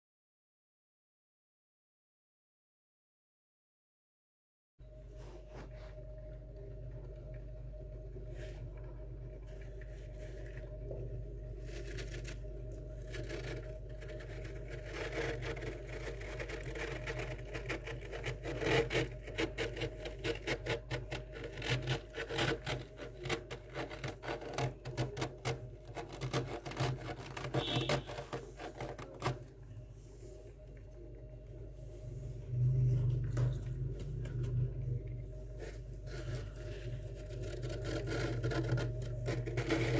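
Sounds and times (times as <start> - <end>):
steady low hum: 4.8 - 39.9
hand scraping frost: 11.6 - 30.4, 35.5 - 39.9.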